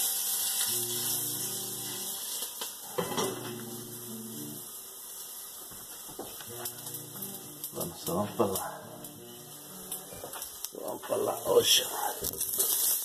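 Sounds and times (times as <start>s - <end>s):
kitchen utensils clinking: 2.9s - 3.6s
low hum of held tones: 3.0s - 4.7s.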